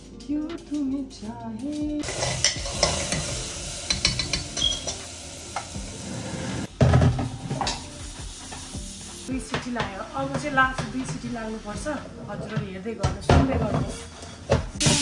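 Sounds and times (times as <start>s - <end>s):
food sizzling in a pan: 2.0s - 12.0s, 13.7s - 15.0s
utensil clinking against pan: 3.9s - 5.0s.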